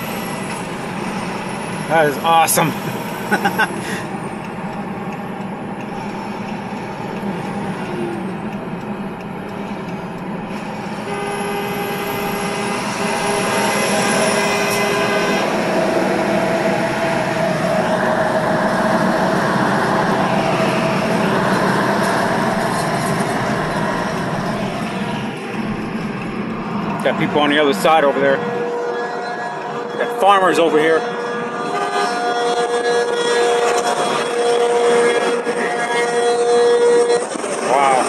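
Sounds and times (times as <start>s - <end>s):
car road and engine noise: 0.0s - 38.0s
car horn: 10.7s - 25.9s, 27.0s - 38.0s.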